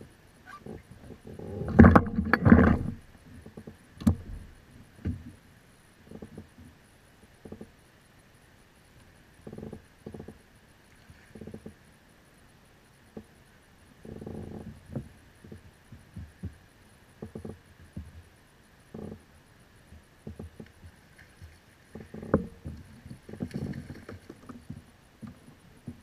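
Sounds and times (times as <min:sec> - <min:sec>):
water splashes: 0:20.6 - 0:26.0.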